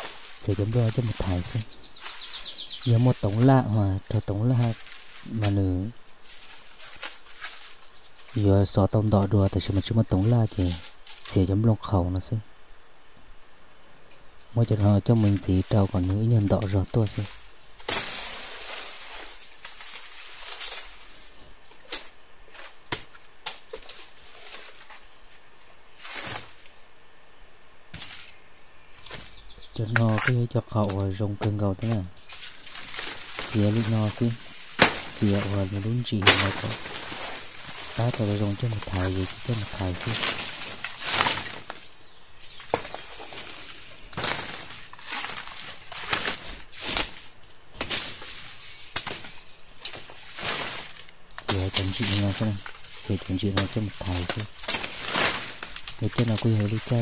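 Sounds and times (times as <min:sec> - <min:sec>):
footsteps through dry undergrowth: 0:00.0 - 0:11.6, 0:14.3 - 0:26.7, 0:28.0 - 0:57.0
brush rustling: 0:00.0 - 0:12.1, 0:14.0 - 0:26.9, 0:27.9 - 0:57.0
twigs snapping: 0:04.6 - 0:08.5, 0:15.2 - 0:25.2, 0:29.0 - 0:57.0
sharp crack: 0:15.2 - 0:21.1, 0:29.0 - 0:41.9, 0:42.5 - 0:57.0.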